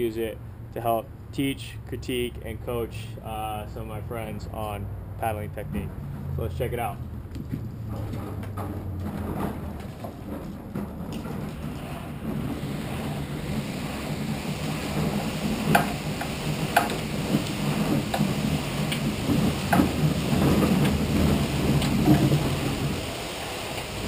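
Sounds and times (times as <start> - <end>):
flywheel whooshing rumble: 7.0 - 24.0.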